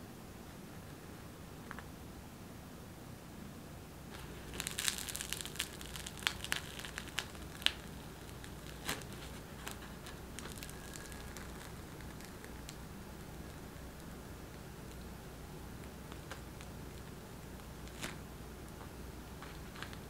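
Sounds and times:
bagel crust crackling as torn: 4.1 - 20.0.

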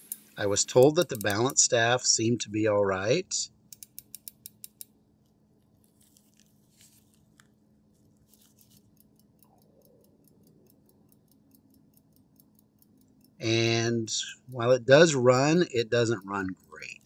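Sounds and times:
watch winding ratchet clicking: 0.0 - 1.7, 3.7 - 4.9, 8.3 - 17.0
watch ticking faintly: 0.0 - 1.9, 8.8 - 17.0.

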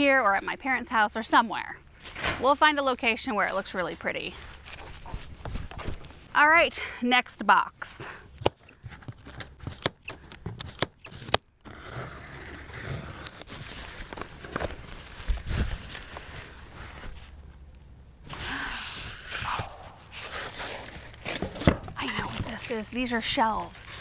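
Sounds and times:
scissors snipping plastic straps: 8.4 - 11.4
plastic wrapping crinkling: 13.0 - 17.6, 18.9 - 24.0
cardboard flaps opening: 18.3 - 24.0.

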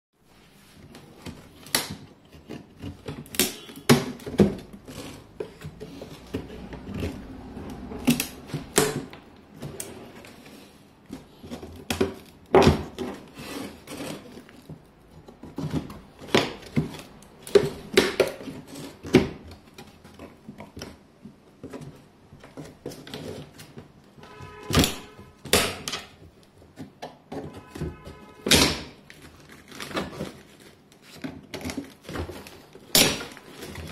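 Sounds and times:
wooden crate knocks and clicks: 21.6 - 29.0.

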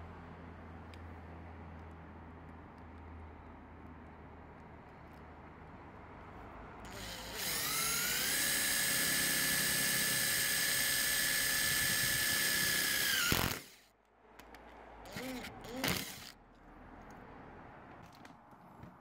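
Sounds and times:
drill motor whining: 6.9 - 13.9, 15.1 - 16.4.

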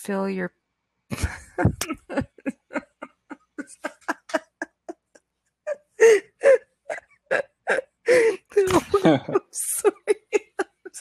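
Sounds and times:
woman laughing: 1.1 - 5.2, 6.0 - 6.6, 7.3 - 11.0.

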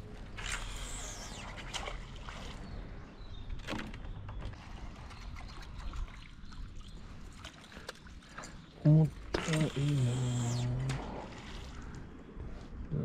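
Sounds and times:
water lapping around a boat: 0.0 - 3.5, 4.1 - 12.8.

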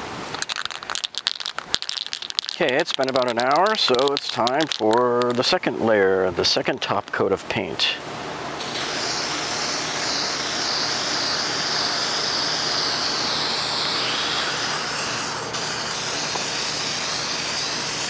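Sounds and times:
spray paint can hissing: 0.3 - 5.4, 8.6 - 18.0.

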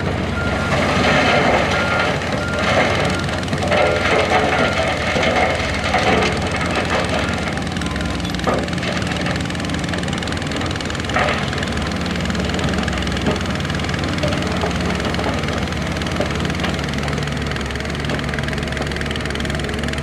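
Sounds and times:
heavy machinery diesel engine running: 0.0 - 20.0
metal clanks and rattles: 0.6 - 10.1.

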